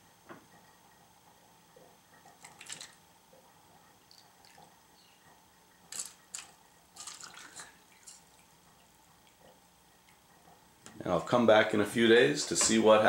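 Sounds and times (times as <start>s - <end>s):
liquid splashing and dripping: 2.2s - 3.0s, 4.0s - 4.9s, 5.9s - 10.7s
liquid trickling into plastic cups: 2.3s - 3.0s, 4.0s - 5.0s, 5.8s - 10.3s.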